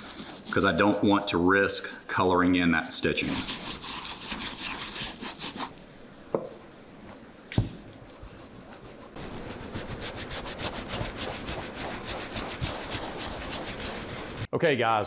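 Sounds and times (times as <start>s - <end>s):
rubbing cream into leather boot: 8.1s - 14.5s.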